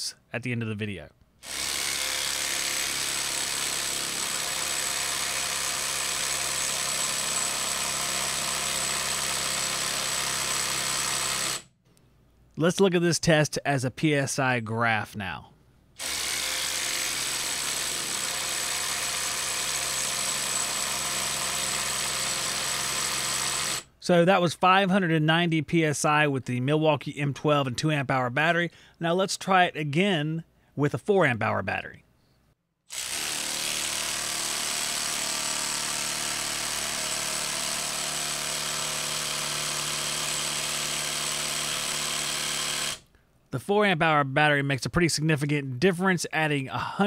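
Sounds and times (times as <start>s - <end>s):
impact driver hammering: 1.4s - 11.6s, 16.0s - 23.9s, 32.9s - 43.1s.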